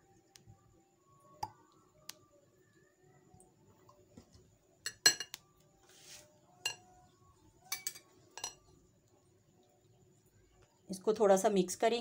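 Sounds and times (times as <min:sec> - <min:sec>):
metal spoon clinking on glass: 0:04.8 - 0:05.4, 0:06.6 - 0:06.9, 0:07.6 - 0:08.7.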